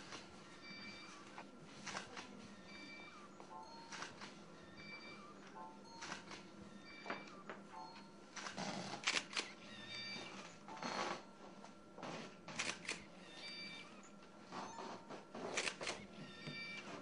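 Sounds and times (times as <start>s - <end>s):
camera shutters firing: 8.4s - 9.5s, 12.6s - 13.1s, 15.5s - 16.0s.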